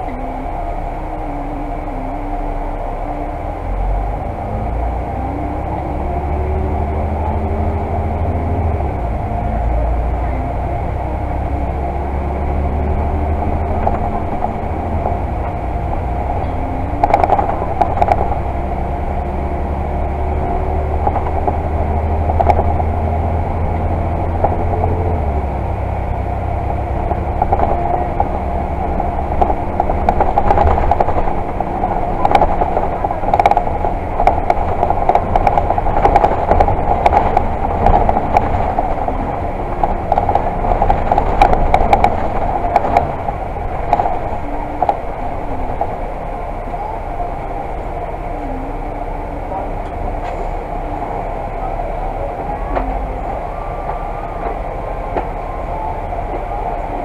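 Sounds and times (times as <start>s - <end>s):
bus diesel engine accelerating: 0.0s - 57.0s.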